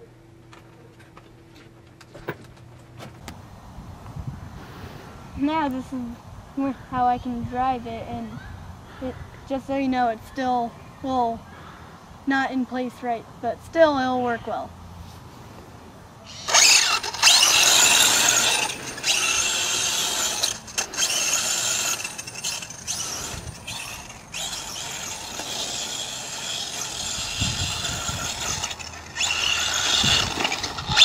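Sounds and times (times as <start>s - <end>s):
rc car motor and gear whine: 16.2s - 31.0s.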